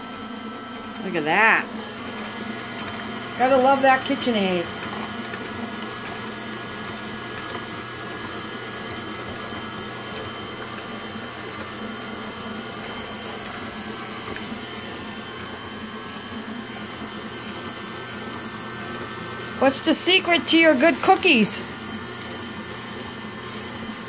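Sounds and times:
stand mixer running: 0:00.0 - 0:24.0.

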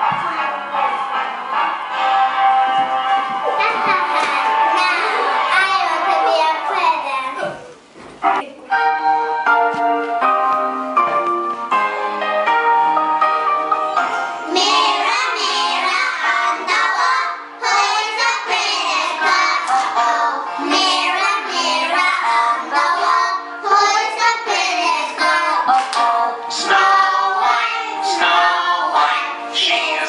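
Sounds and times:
girls singing a children's song: 0:03.5 - 0:07.0, 0:14.0 - 0:30.0.

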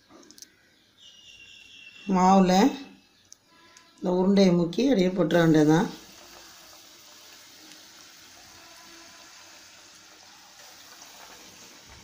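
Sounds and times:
food sizzling in hot oil: 0:05.2 - 0:12.0.

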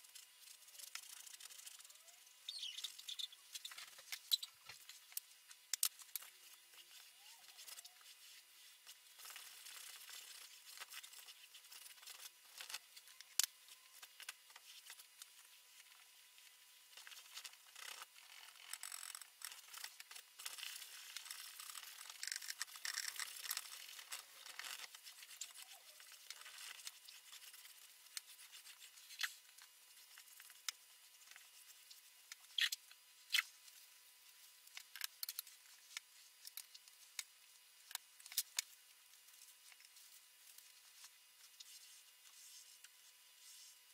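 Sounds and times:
paintbrush scrubbing canvas: 0:06.8 - 0:12.3, 0:40.8 - 0:43.8.

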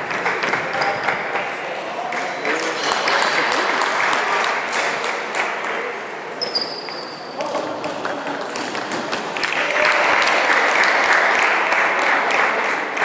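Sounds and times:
spectators applauding: 0:02.4 - 0:05.6, 0:07.6 - 0:13.0.

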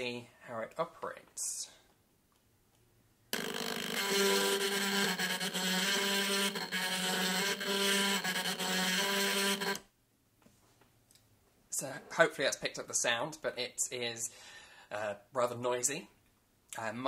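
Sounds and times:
grinding gear noise: 0:03.4 - 0:09.8
motor whine: 0:03.4 - 0:09.8.

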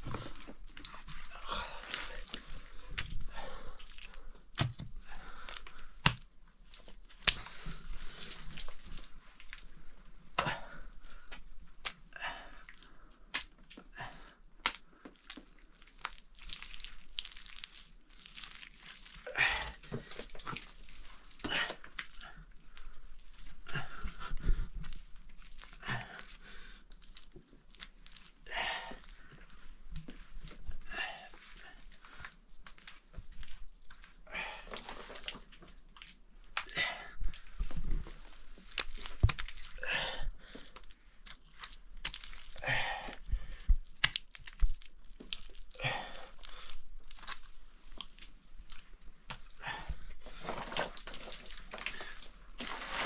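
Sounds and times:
hand slapping wet mud: 0:04.5 - 0:07.6, 0:10.3 - 0:10.6, 0:14.6 - 0:14.9, 0:40.8 - 0:46.1.

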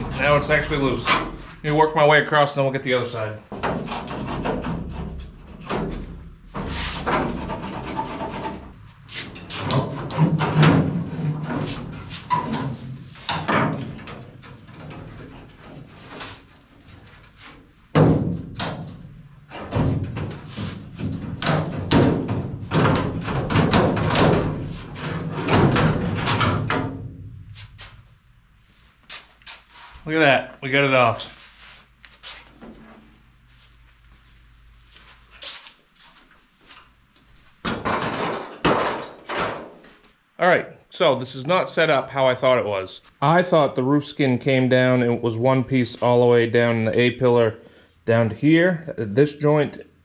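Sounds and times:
sheet metal scraping and rattling: 0:00.0 - 0:02.1, 0:03.0 - 0:28.0
metal knocks and clatters: 0:03.5 - 0:27.4, 0:37.6 - 0:39.8.

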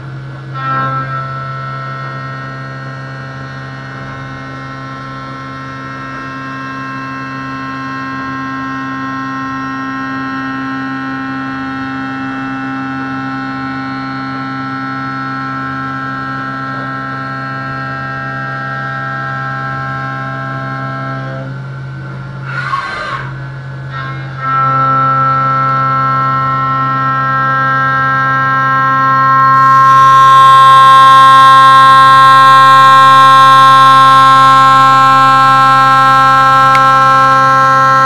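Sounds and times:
milling machine spindle whine: 0:00.0 - 0:38.0.

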